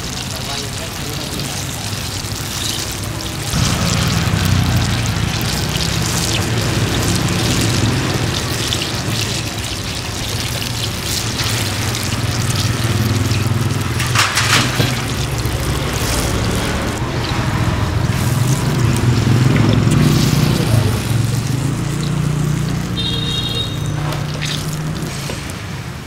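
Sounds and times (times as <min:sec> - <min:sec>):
oil sizzling and crackling: 0:00.0 - 0:26.0.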